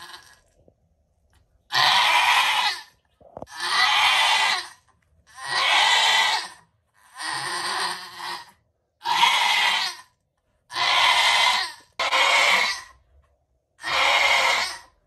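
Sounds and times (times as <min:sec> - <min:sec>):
goat bleating loudly: 0:01.7 - 0:02.9, 0:03.5 - 0:10.1, 0:10.7 - 0:12.9, 0:13.8 - 0:14.9.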